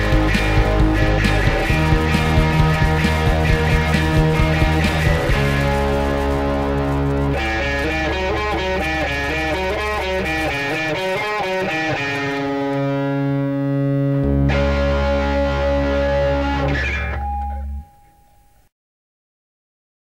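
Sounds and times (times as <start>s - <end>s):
low bass: 0.0s - 10.5s
distorted electric guitar: 0.0s - 18.6s.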